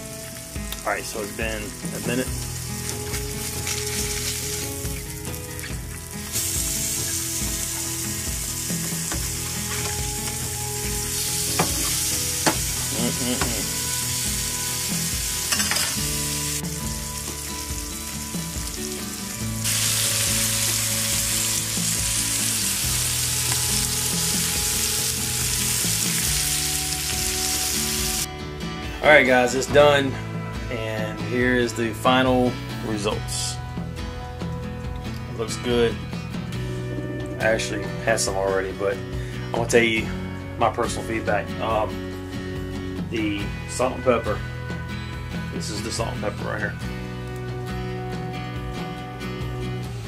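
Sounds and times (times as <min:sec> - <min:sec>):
fish fillets sizzling in butter: 0:00.0 - 0:28.3.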